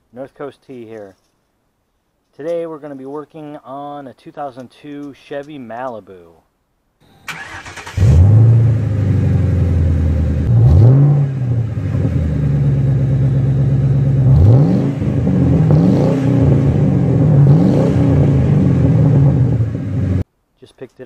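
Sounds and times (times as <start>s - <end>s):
car engine idling and revving: 7.4s - 20.2s.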